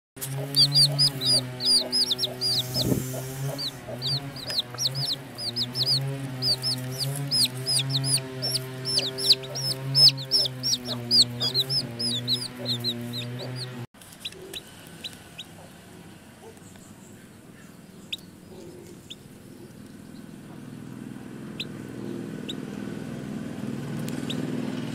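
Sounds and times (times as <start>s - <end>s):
low musical drone: 0.2s - 13.9s
baby chicks peeping: 0.2s - 24.9s.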